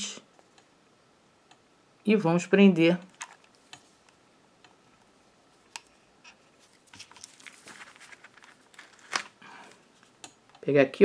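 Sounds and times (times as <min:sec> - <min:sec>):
clicks and rustles of handling: 0:05.6 - 0:10.6.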